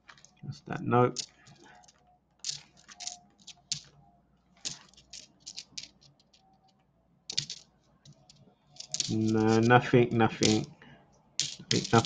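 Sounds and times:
coins clicking together: 1.1 - 3.9, 4.6 - 6.5, 7.3 - 9.7, 11.4 - 12.0.

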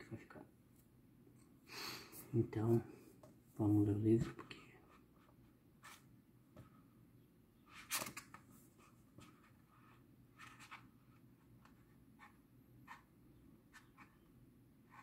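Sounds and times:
book pages rustling: 7.8 - 8.6.

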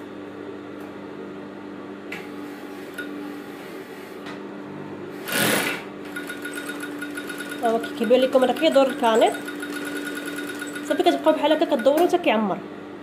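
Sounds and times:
sewing machine motor humming: 5.2 - 12.1.

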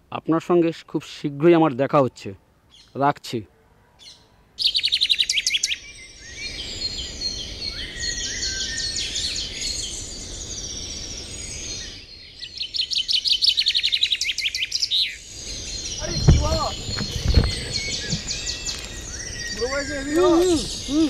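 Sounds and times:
low background noise: 0.0 - 21.0
birds chirping and trilling: 2.7 - 3.0, 4.0 - 21.0.

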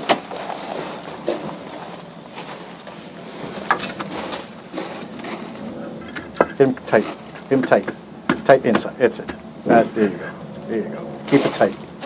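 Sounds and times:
faint background noise: 0.0 - 12.0
concrete blocks knocking: 6.0 - 9.4.

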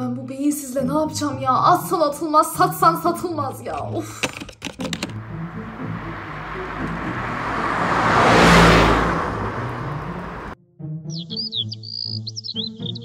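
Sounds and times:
soft background music: 0.0 - 3.8
car passing by: 5.0 - 10.6.

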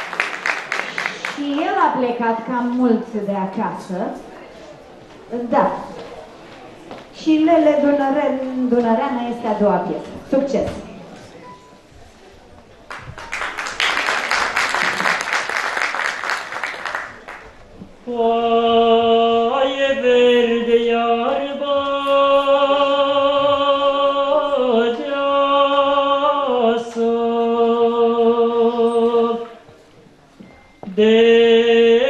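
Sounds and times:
audience applause: 0.0 - 1.8, 12.8 - 17.6
man singing unaccompanied: 18.0 - 29.6, 30.8 - 32.0.

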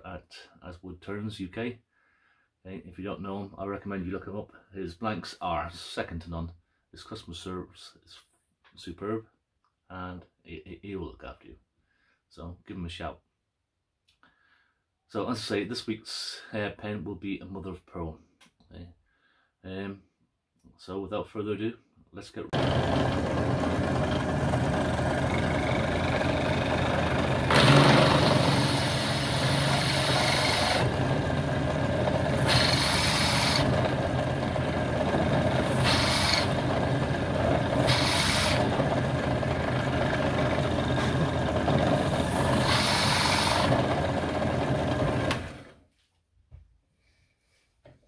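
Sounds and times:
drill bit boring into material: 22.6 - 45.7
drill press motor running: 22.6 - 45.8.

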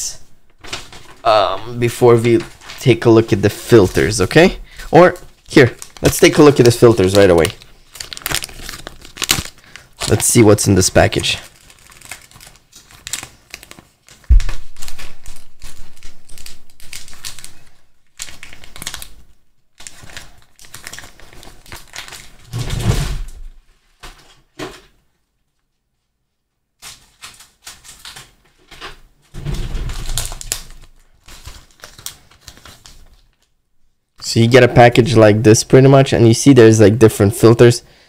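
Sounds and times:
package rustling and clicking: 5.1 - 10.4, 11.2 - 22.5, 26.8 - 29.0, 29.9 - 33.5
loud thump: 14.3 - 14.9.

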